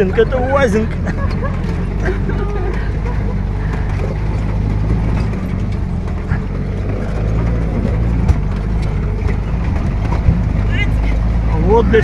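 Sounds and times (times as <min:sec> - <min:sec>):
off-road vehicle engine pulling: 0:00.0 - 0:12.0
road noise: 0:00.0 - 0:12.0
sharp knocks from jolting vehicle: 0:00.9 - 0:11.5.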